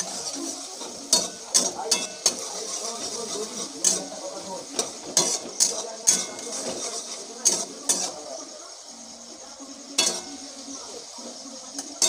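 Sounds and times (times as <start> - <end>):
spatula scraping metal pan: 0.0 - 8.4, 10.0 - 10.6
frying sizzle: 0.0 - 12.0.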